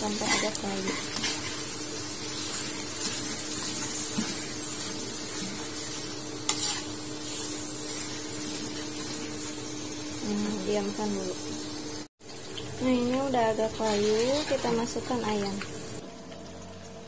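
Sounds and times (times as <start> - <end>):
spatula scraping a wok: 0.0 - 9.7, 13.5 - 15.5
vegetables sizzling in hot oil: 0.0 - 17.0.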